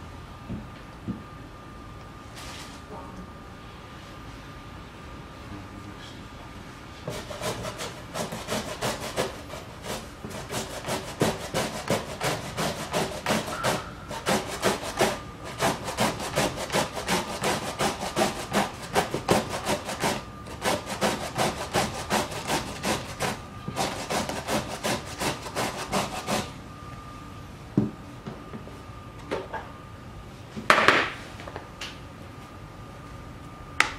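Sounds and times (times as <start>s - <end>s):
cucumber rasping on grater: 7.1s - 26.5s.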